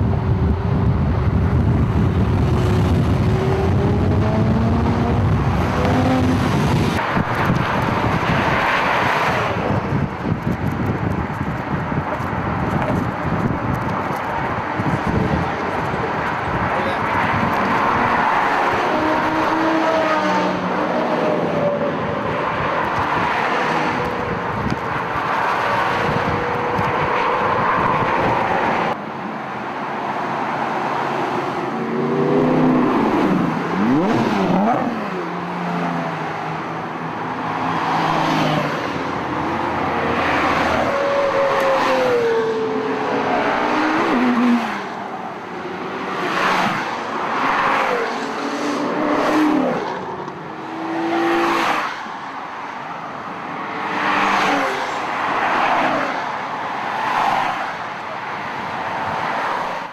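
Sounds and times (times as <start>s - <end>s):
car engine drone: 0.0s - 29.6s, 30.6s - 57.3s
cars passing by: 0.0s - 59.9s.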